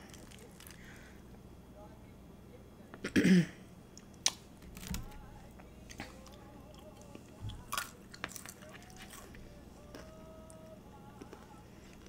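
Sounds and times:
close chewing and mouth sounds: 5.5s - 12.0s.

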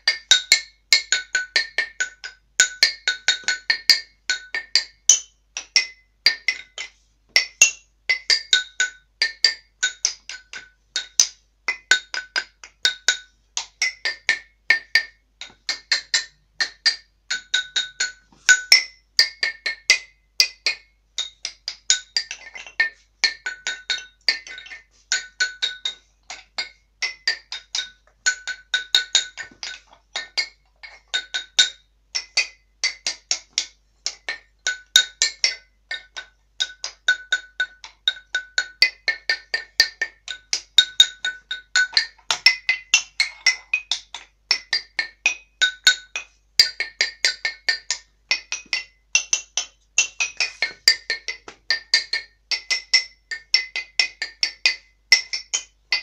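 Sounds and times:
xylophone melody: 14.0s - 32.4s, 34.2s - 56.0s.

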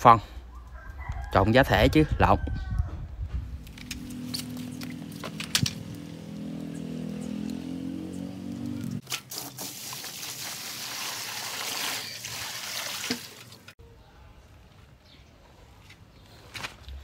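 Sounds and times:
water poured into plastic wheelbarrow: 9.0s - 13.7s.

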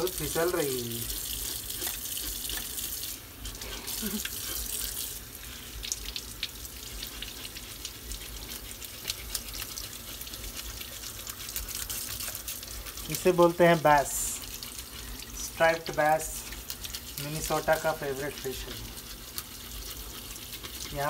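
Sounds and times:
faucet running into sink: 0.0s - 9.8s.

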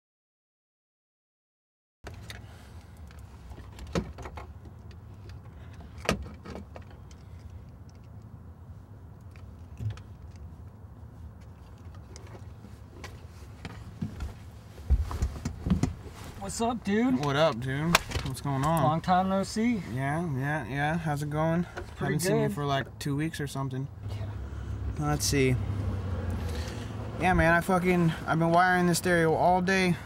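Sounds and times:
low hum inside car: 8.5s - 30.0s
clicks and knocks of handling: 11.3s - 16.0s.

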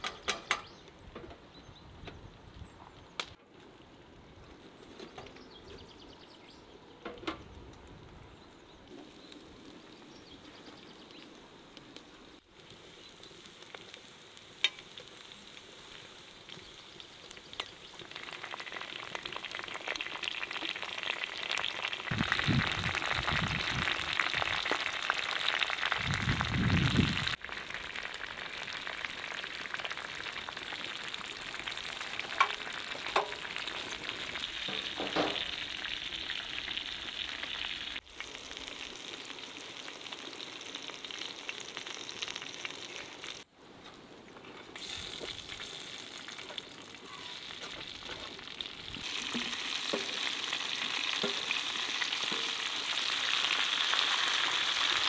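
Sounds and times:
food sizzling in oil: 12.8s - 43.5s, 44.8s - 55.0s.

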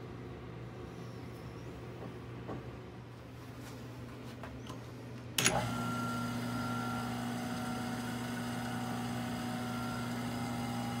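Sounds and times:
wood lathe humming: 5.6s - 11.0s.

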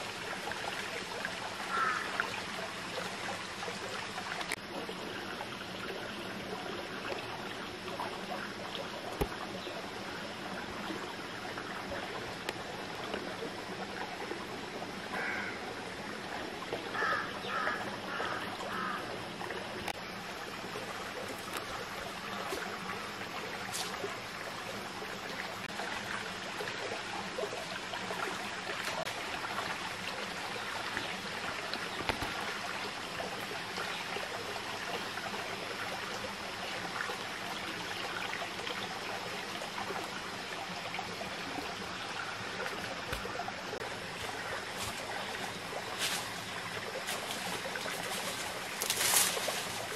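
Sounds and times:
stream flowing over rocks: 0.0s - 49.9s.

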